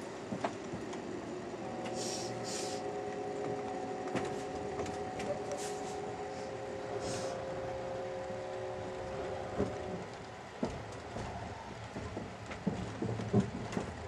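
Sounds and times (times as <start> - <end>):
steady whining tone: 0.0 - 13.6
train rumble: 0.0 - 14.0
short hisses: 2.0 - 2.8.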